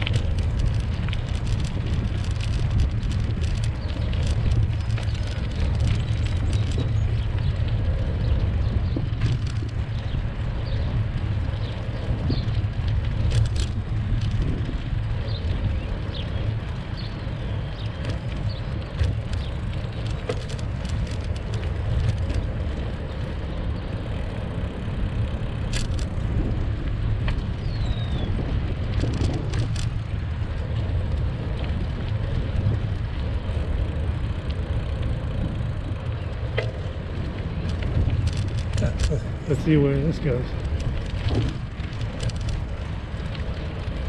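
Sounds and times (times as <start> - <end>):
bicycle clicks and rattles: 0.0 - 44.0
bicycle tyres rolling on asphalt: 0.0 - 44.0
wind on microphone: 0.0 - 44.0
birds chirping: 3.1 - 13.3, 15.1 - 24.8, 27.4 - 29.8, 35.9 - 41.5.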